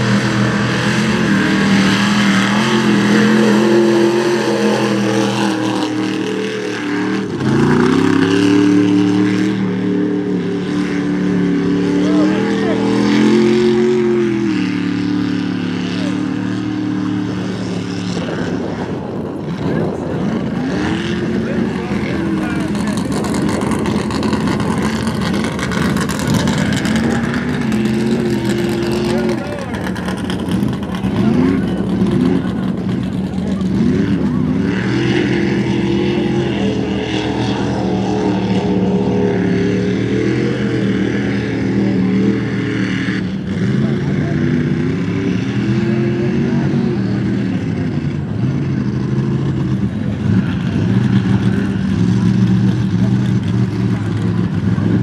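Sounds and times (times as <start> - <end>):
truck engine revving high: 0.0 - 55.0.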